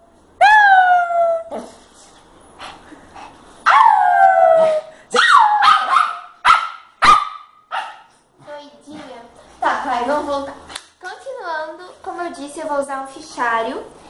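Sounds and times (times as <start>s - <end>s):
dog barking sharply: 5.2s - 8.1s.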